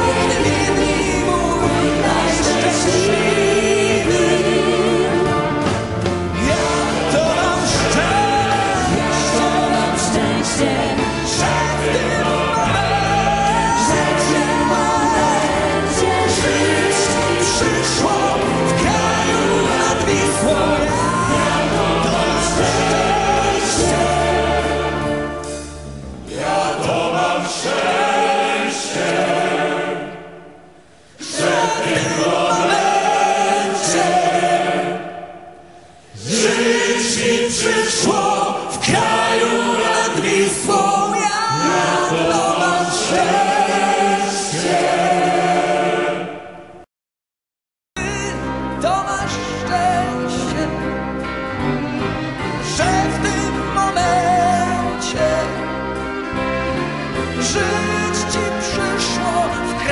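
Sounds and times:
voices singing with accompaniment: 0.0s - 46.8s.

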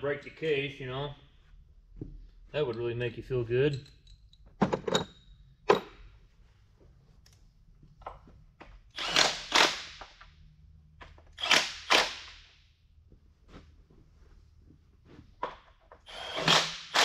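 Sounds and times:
air-powered hand tool bursts: 9.0s - 10.0s, 11.4s - 12.3s, 16.1s - 17.0s.

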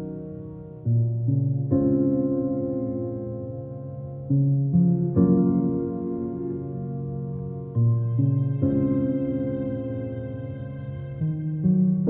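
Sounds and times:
soft ambient held chord: 0.0s - 12.0s.

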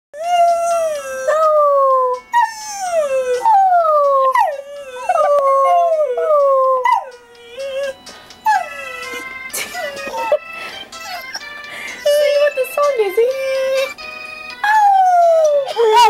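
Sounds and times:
dog howling: 0.2s - 9.2s, 14.6s - 16.0s
phone ringtone: 7.1s - 16.0s.

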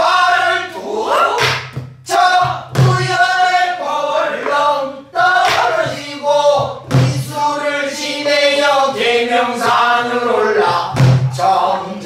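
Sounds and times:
group singing in unison: 0.0s - 12.0s
barrel drums beating: 1.4s - 3.3s, 5.4s - 7.4s, 10.9s - 11.4s.

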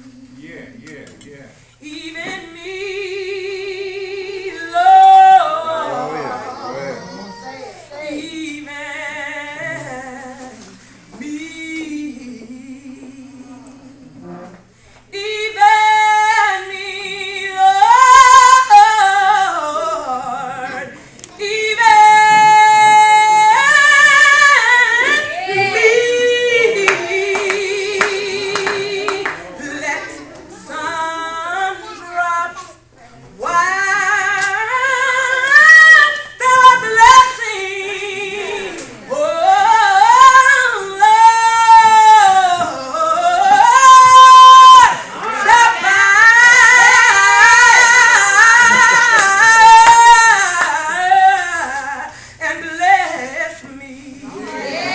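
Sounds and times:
woman singing unaccompanied: 1.8s - 6.6s, 8.0s - 14.4s, 15.1s - 32.7s, 33.4s - 54.9s.

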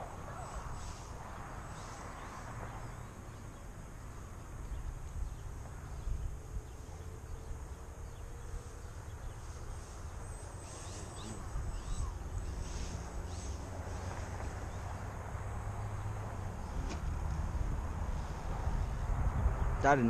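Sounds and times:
model plane motor buzz: 8.0s - 13.6s
wind on microphone: 10.7s - 14.8s, 16.0s - 20.0s.

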